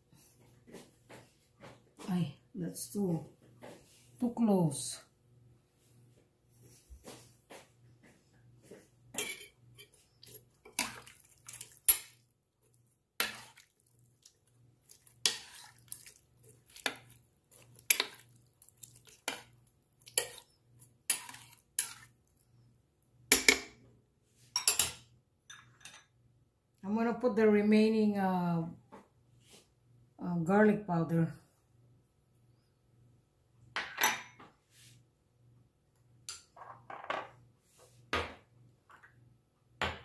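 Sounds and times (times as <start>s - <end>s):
metal spoon scraping a crock: 15.0s - 18.3s, 19.2s - 22.1s.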